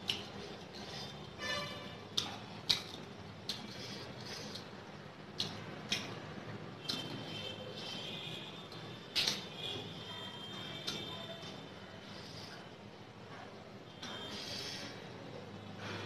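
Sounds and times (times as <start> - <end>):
wet lip and finger smacks: 2.1 - 3.8, 5.3 - 6.2.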